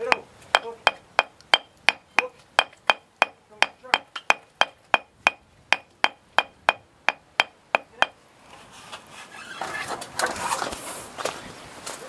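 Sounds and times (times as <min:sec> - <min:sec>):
hammer tapping with metallic ring: 0:00.0 - 0:08.2
scraping: 0:05.7 - 0:11.4
rustling: 0:08.3 - 0:12.0.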